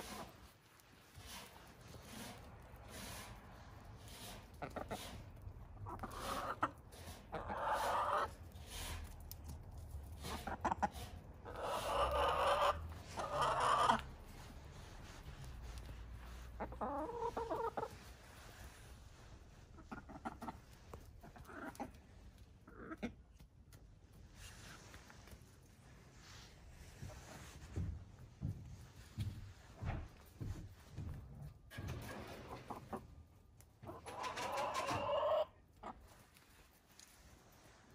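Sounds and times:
hens clucking: 0.0 - 9.3, 10.1 - 18.4, 19.3 - 23.5, 32.3 - 36.5.

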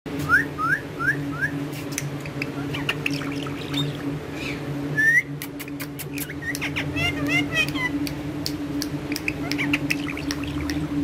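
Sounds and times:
steady low hum: 0.1 - 11.0
parakeet chirping: 1.9 - 4.6, 5.6 - 8.2, 9.1 - 10.9.

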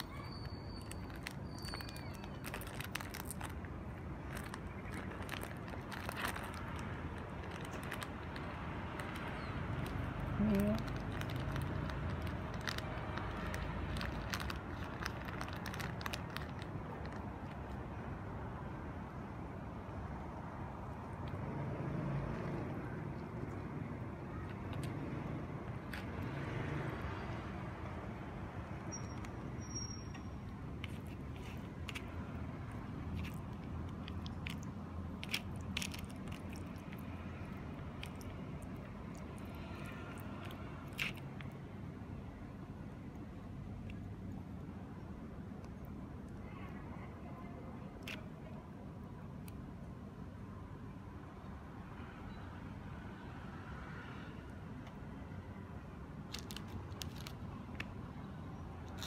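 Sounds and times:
kitten crunching dry food: 0.0 - 17.9, 25.7 - 26.3, 30.2 - 41.6, 56.2 - 58.0, 58.8 - 59.0.

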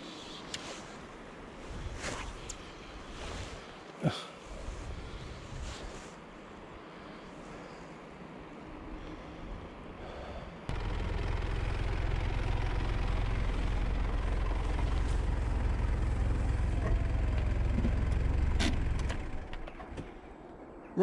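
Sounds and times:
faint outdoor background noise: 0.0 - 21.0
car engine idling: 10.7 - 19.7.

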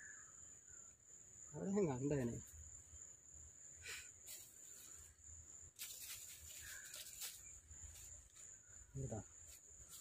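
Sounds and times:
high-pitched insect drone: 0.0 - 10.0
dry leaves rustling: 5.7 - 8.6, 9.4 - 10.0.

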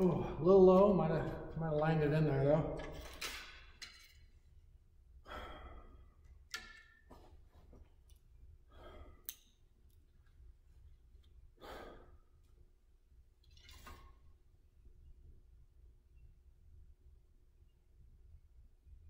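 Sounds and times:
person breathing slowly: 5.2 - 6.2, 8.7 - 9.3, 11.6 - 12.4.

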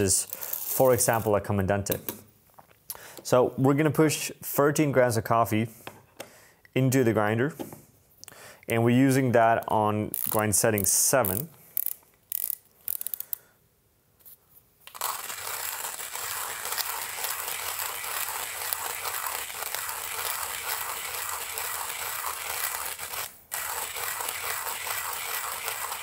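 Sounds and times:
coffee grinder crunching beans: 14.8 - 26.0.

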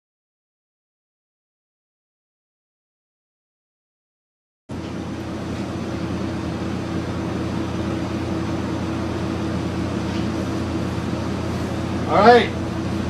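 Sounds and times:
kitchen equipment humming: 4.7 - 13.0.

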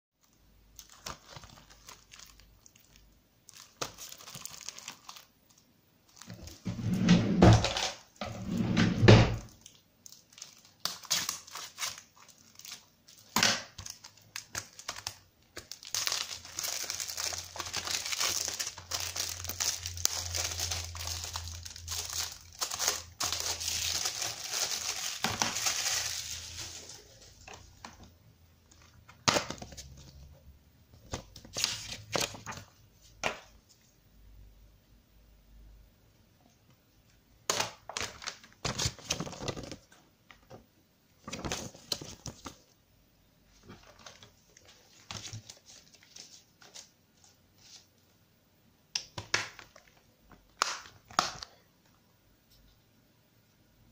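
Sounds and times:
plastic wrapping tearing and crinkling: 0.8 - 6.6, 9.5 - 27.6, 37.5 - 39.9.

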